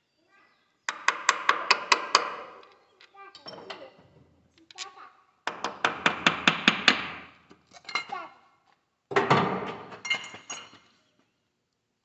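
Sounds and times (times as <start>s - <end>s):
metal clinks and clatter: 10.0s - 10.9s.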